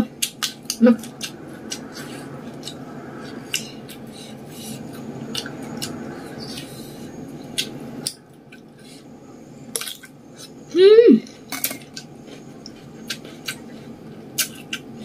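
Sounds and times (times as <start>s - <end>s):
steady low hum: 0.0s - 15.0s
chewing crunches: 11.6s - 14.9s.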